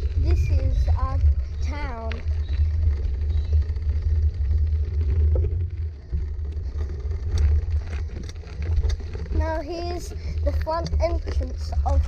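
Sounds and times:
stones clicking: 0.0s - 9.4s
tyres on loose gravel: 0.0s - 12.0s
wind buffeting microphone: 0.0s - 12.0s.

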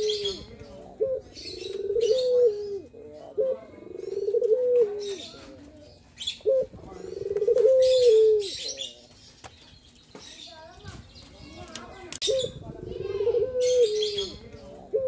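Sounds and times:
dove cooing: 0.0s - 9.0s, 12.2s - 15.0s
birds chirping: 0.0s - 15.0s.

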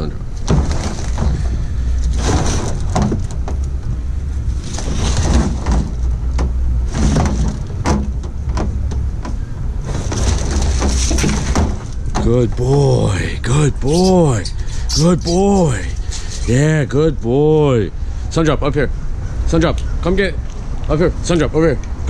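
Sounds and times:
steady low rumble: 0.0s - 22.0s
plastic trash can knocks and scrapes: 0.4s - 3.6s, 4.8s - 12.3s.

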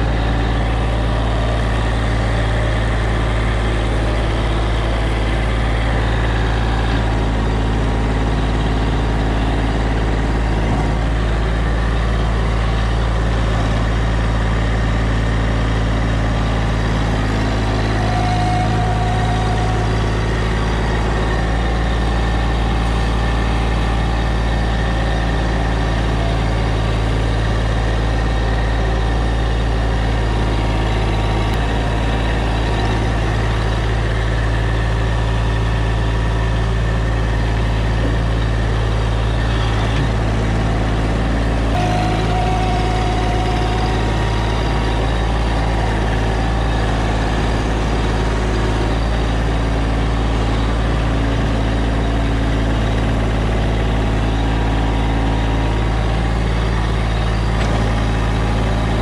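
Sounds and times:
engine running steadily: 0.0s - 59.0s.

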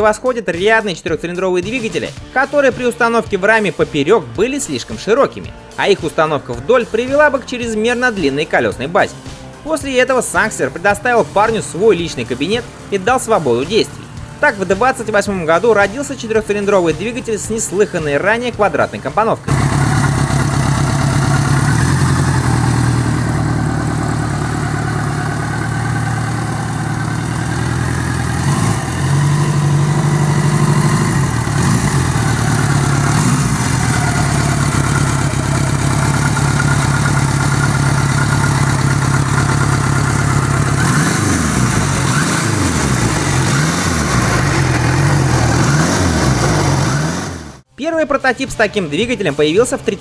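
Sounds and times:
motorcycle engine revving: 19.4s - 47.7s.

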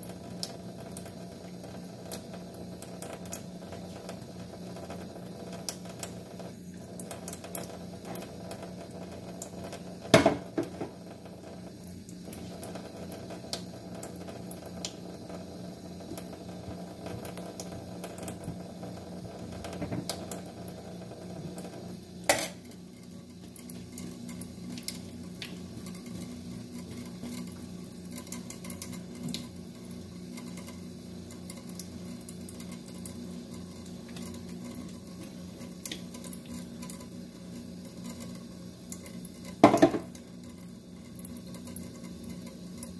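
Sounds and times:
tap running into sink: 3.0s - 11.6s, 12.3s - 22.8s, 38.9s - 40.3s.

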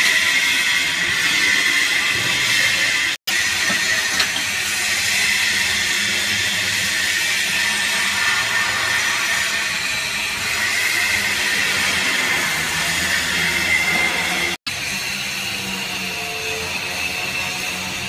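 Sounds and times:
hydraulic pump motor humming: 2.0s - 5.1s.

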